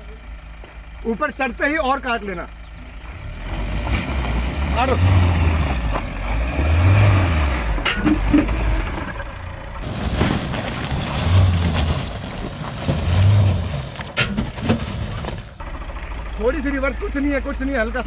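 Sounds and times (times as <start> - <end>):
car engine pulling at low speed: 0.0 - 18.0
stones knocking under tyres: 7.5 - 18.0.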